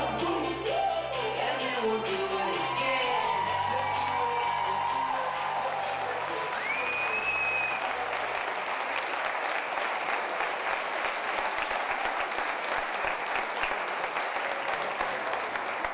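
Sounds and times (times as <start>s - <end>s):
music: 0.0s - 8.8s
audience applauding: 2.4s - 15.9s.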